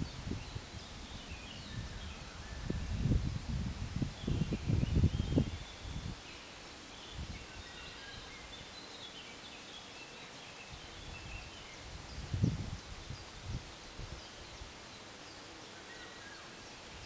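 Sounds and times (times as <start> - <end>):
gusty rumble on microphone: 0.0 - 6.2, 11.0 - 14.3
faint background noise: 0.0 - 17.0
small birds singing: 0.0 - 17.0.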